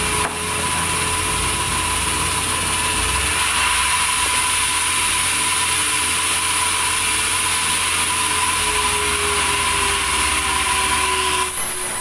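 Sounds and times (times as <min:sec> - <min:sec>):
band saw humming and whining: 0:00.0 - 0:12.0.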